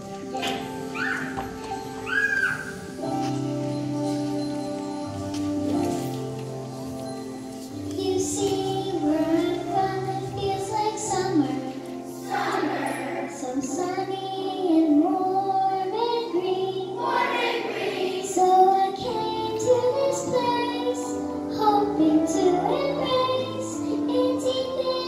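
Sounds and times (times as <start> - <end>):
instrumental accompaniment: 0.0 - 25.0
children singing: 8.0 - 25.0.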